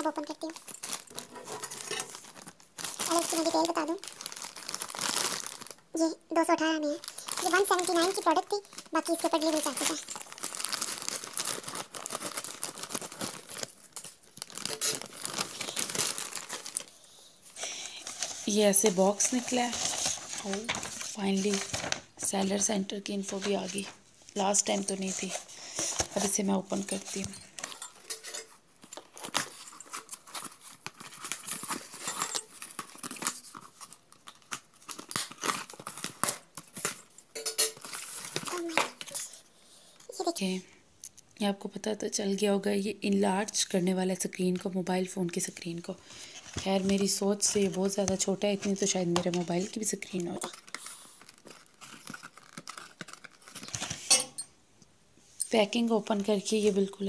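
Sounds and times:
plastic pouch crinkling and tearing: 0.0s - 6.0s, 6.8s - 17.0s, 17.6s - 22.1s, 28.7s - 39.4s, 46.2s - 54.1s.

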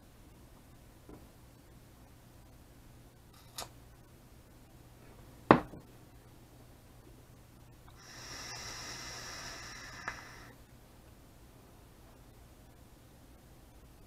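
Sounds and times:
vape draw hissing and whistling: 7.9s - 10.6s.

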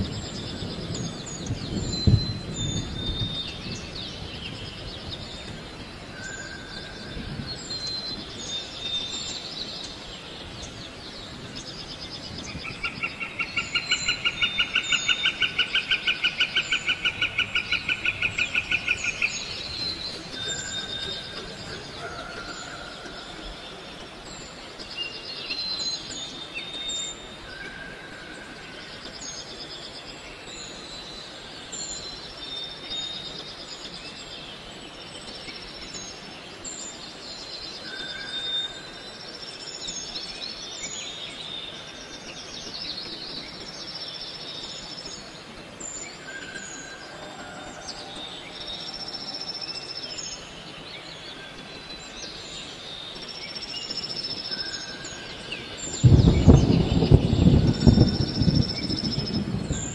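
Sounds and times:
birds chirping: 0.0s - 59.9s
whistled bird notes: 12.4s - 28.9s.

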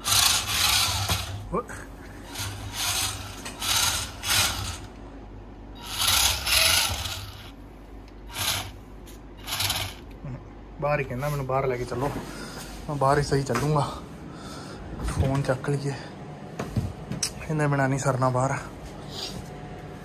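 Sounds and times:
small electric motor buzzing: 0.0s - 1.4s, 2.3s - 4.9s, 5.8s - 7.6s, 8.3s - 8.8s, 9.4s - 10.1s.

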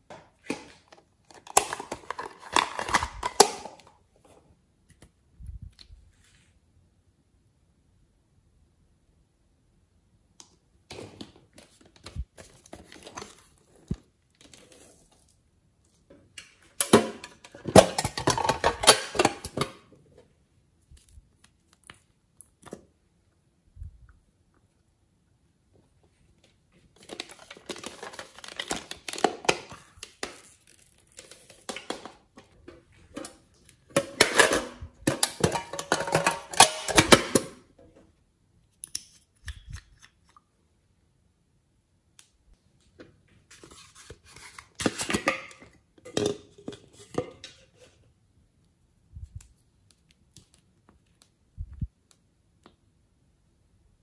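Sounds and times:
glitter containers rattling: 33.9s - 37.4s.

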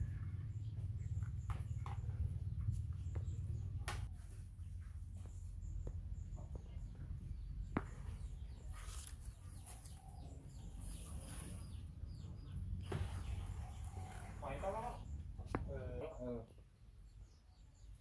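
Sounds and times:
steady low rumble: 0.0s - 8.7s
small birds chirping: 0.0s - 18.0s.

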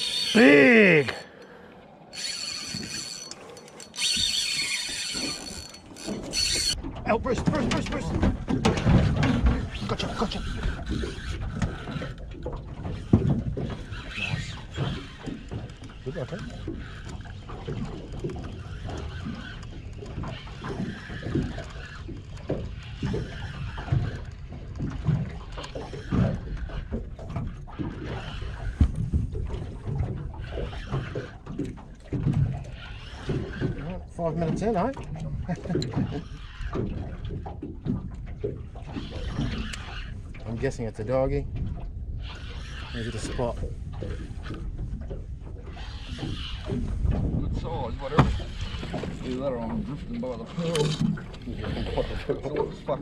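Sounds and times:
fishing reel drag ratcheting: 0.0s - 6.8s, 9.7s - 24.7s, 32.6s - 33.9s, 38.8s - 40.2s, 42.2s - 44.7s, 45.6s - 46.8s, 47.9s - 49.4s, 50.6s - 52.5s
water lapping against boat hull: 0.0s - 53.0s.

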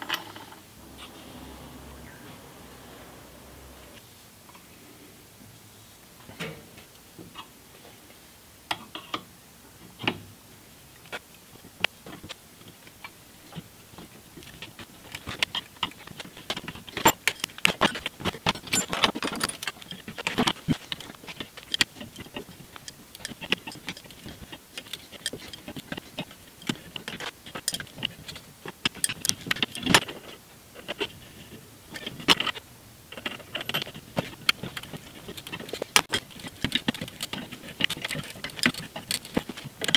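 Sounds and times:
wrench knocking and scraping metal: 14.4s - 31.2s, 31.9s - 39.9s.

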